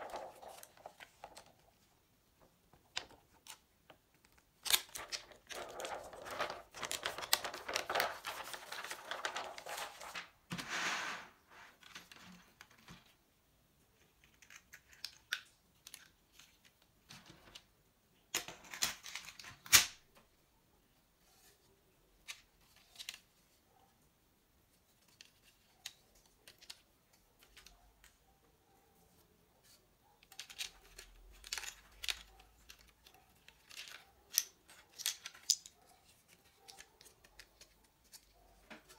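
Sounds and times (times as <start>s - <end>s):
plastic sheets crinkling: 0.0s - 1.9s, 4.2s - 10.7s, 30.3s - 38.9s
plastic parts clicking and knocking: 2.4s - 8.0s, 30.2s - 38.9s.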